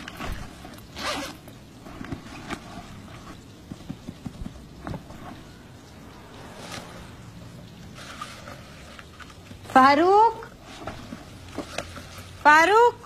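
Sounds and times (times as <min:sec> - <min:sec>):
zip: 0:00.0 - 0:03.4.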